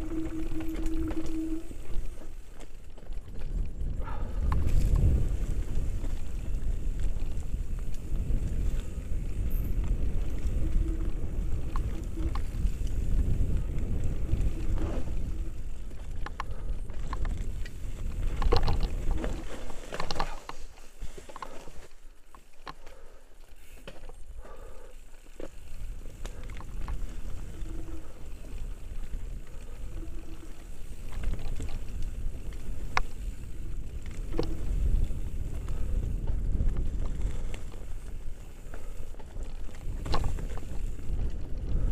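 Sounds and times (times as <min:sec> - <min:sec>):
wind rumbling on microphone: 0:00.0 - 0:21.8, 0:25.4 - 0:41.9
mountain bike clattering on dirt trail: 0:00.0 - 0:41.9.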